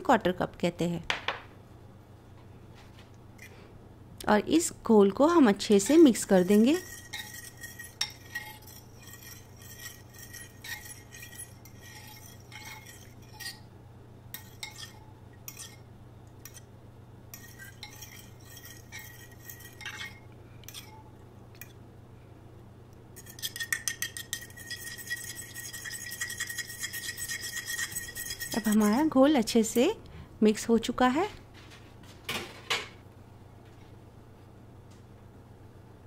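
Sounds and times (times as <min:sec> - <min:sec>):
batter stirred in bowl: 0:05.5 - 0:13.7, 0:14.3 - 0:16.7, 0:17.3 - 0:21.8, 0:23.2 - 0:29.5
utensil clinking against bowl: 0:05.7 - 0:13.6, 0:14.3 - 0:16.7, 0:17.3 - 0:21.8, 0:23.2 - 0:29.8.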